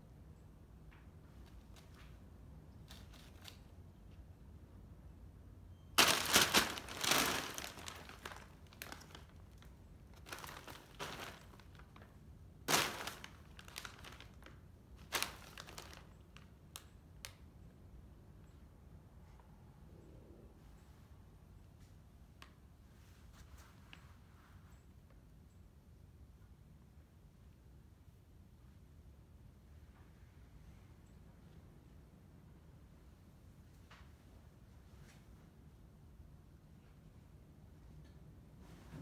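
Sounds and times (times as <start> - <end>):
plastic bag crinkling and rustling: 2.8 - 3.7, 6.0 - 16.5.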